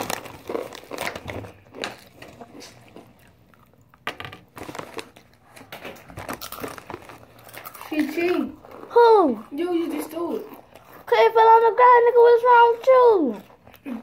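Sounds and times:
foil snack bag crinkling: 0.0s - 3.4s, 4.4s - 13.4s
crunching chips being chewed: 0.0s - 11.1s.

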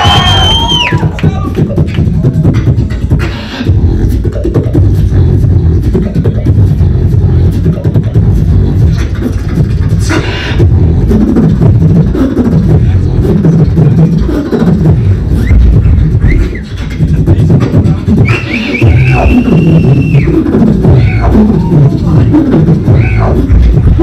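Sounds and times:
whistle-like sound: 0.0s - 1.1s, 15.3s - 16.8s, 18.1s - 21.9s
beatboxing into a microphone: 0.0s - 24.0s.

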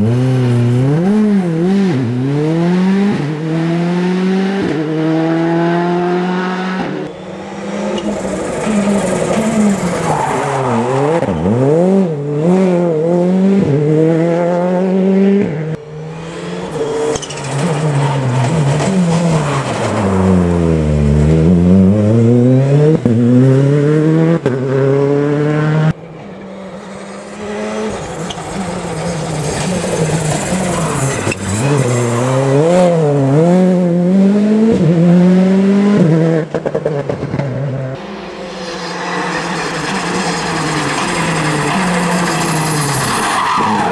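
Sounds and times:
rally car engine revving: 0.0s - 43.9s.

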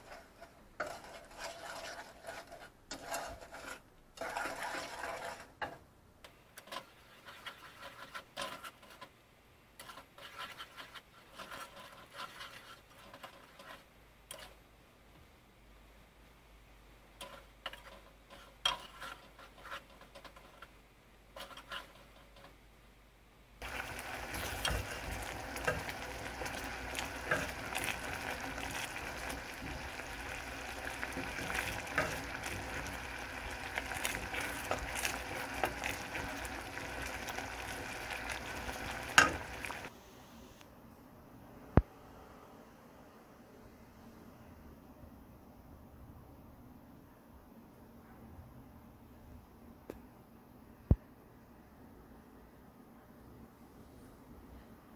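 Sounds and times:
wooden spatula scraping pot: 0.0s - 5.9s, 6.6s - 9.2s, 9.8s - 14.6s, 17.2s - 22.6s, 23.6s - 39.9s
jam bubbling and crackling: 23.6s - 39.9s.

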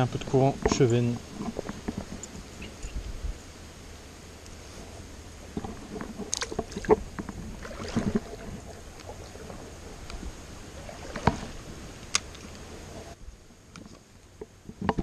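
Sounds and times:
fish handling noise: 4.5s - 13.2s
water splashes: 5.0s - 13.2s.

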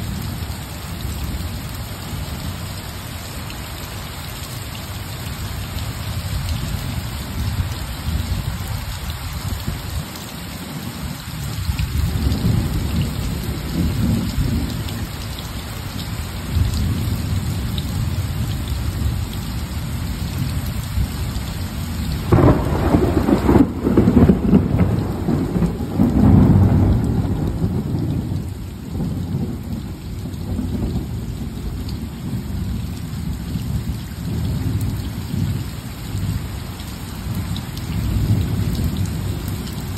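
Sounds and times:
steady rain falling: 0.0s - 39.9s
thunder rumbling: 22.1s - 35.6s.

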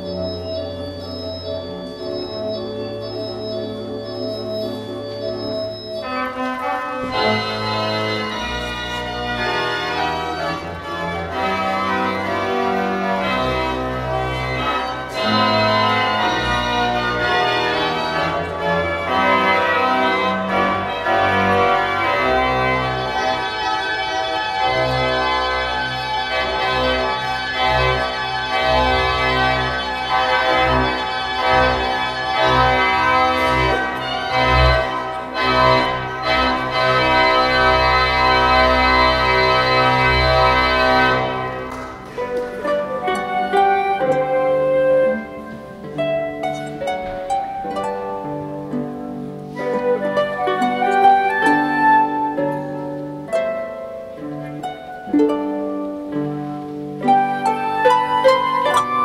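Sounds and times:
deep organ pedal bass: 0.0s - 41.7s
church organ chords: 0.0s - 54.9s.

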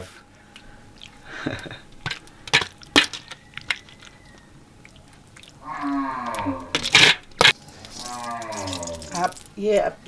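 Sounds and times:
drawn-out falling call: 5.6s - 6.9s.

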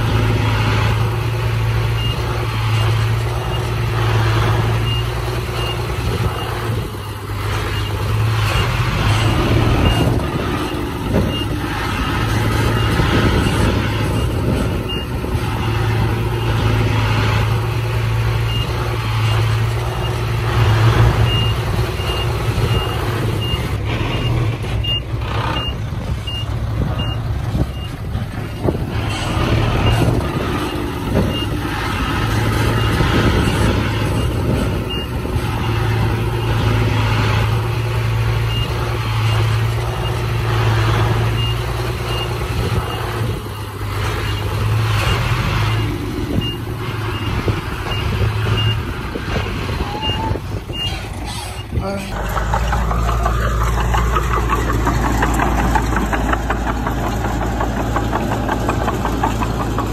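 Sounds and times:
diesel machinery running: 0.0s - 59.9s
reversing alarm beeping: 4.8s - 16.7s, 21.2s - 31.7s, 49.9s - 51.0s.

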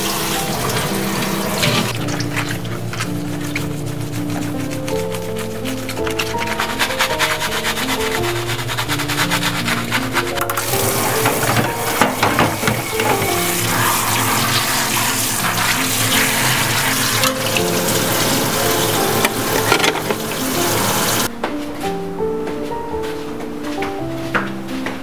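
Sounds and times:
tap water spraying into a sink: 0.0s - 2.5s, 10.5s - 21.3s
soft background music: 0.0s - 25.0s.

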